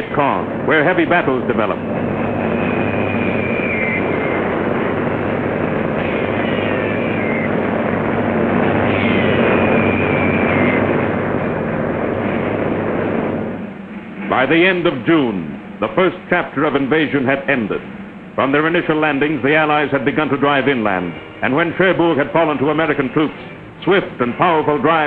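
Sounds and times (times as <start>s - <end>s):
falling whistles: 2.2s - 5.0s, 6.0s - 7.6s, 8.8s - 11.0s.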